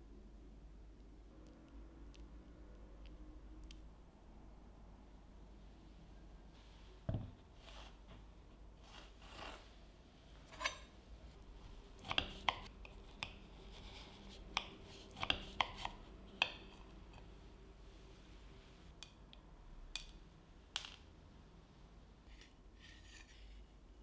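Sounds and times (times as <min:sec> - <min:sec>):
soft scraping: 0:06.6 - 0:11.4, 0:22.2 - 0:23.8.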